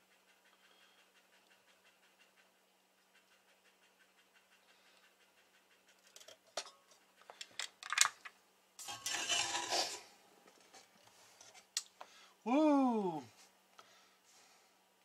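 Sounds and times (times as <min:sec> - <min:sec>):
metal scraping and rubbing: 0:08.8 - 0:10.2.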